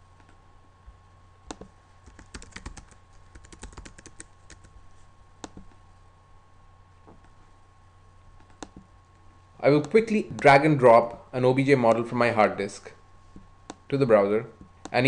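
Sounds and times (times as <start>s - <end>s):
computer keyboard key clicks: 1.5s - 4.7s.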